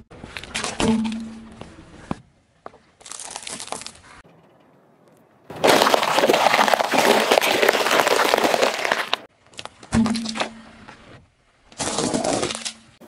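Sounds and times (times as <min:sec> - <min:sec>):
tyre crushing peppers: 0:03.0 - 0:04.1, 0:05.5 - 0:09.3.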